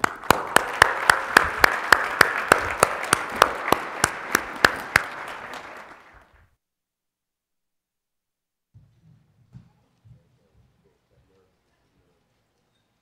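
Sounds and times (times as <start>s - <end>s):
close sharp hand clapping: 0.0s - 6.3s
audience applauding: 0.0s - 6.4s.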